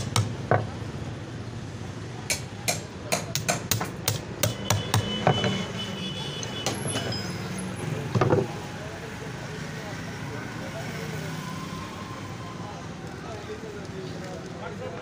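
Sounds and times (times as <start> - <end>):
hammer striking steel punch: 0.0 - 0.6, 2.3 - 5.5.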